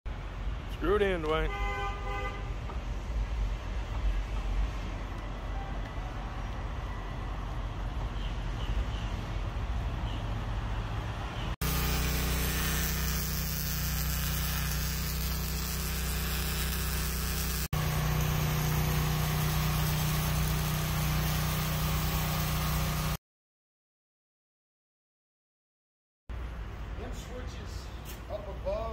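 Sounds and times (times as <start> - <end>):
arc welder crackling hiss: 11.6 - 23.2.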